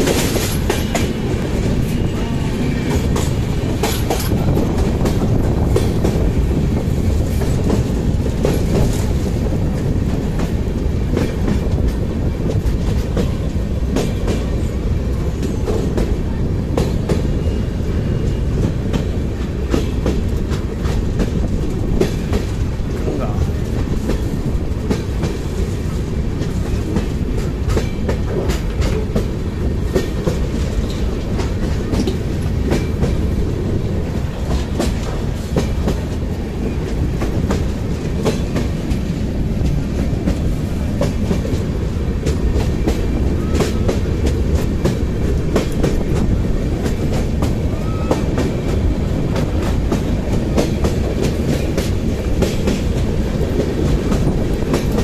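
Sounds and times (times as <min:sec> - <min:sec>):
train wheels rumbling on track: 0:00.0 - 0:55.0
wheels clanking over rail joints: 0:02.7 - 0:14.7.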